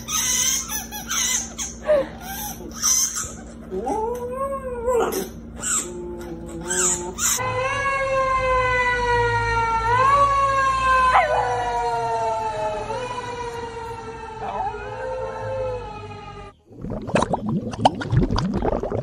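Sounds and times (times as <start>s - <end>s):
fire engine siren: 7.4s - 16.6s
dog howling: 9.8s - 13.6s, 14.4s - 16.5s.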